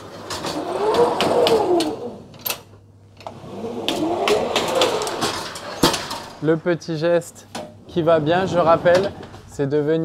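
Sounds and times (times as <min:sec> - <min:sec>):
oven loader belt rolling whir: 0:00.0 - 0:02.5, 0:03.2 - 0:06.7, 0:07.8 - 0:09.6.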